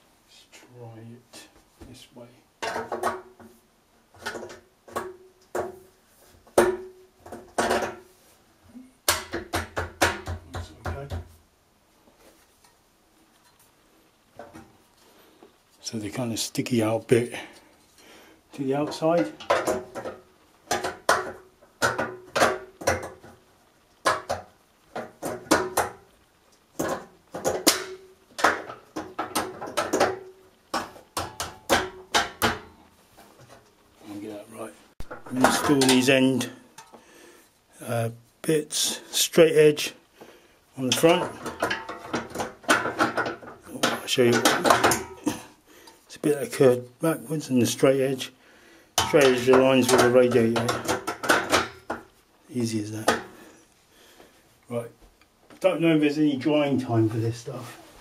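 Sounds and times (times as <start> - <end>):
clicks and knocks on a metal radiator: 2.6 - 8.1, 9.0 - 11.4, 14.4 - 14.8, 18.8 - 23.4, 24.0 - 33.6, 35.0 - 36.2, 40.9 - 45.5, 49.0 - 52.2, 53.0 - 53.4.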